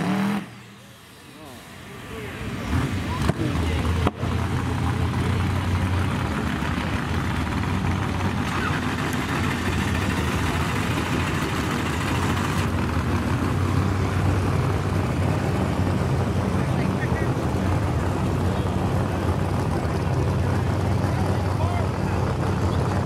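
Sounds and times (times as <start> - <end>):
truck engine idling: 0.5 - 23.0.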